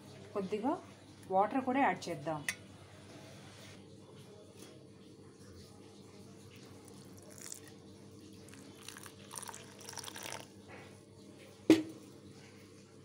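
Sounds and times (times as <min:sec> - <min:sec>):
water splashing into steel bowl: 0:07.0 - 0:07.8, 0:08.4 - 0:10.5.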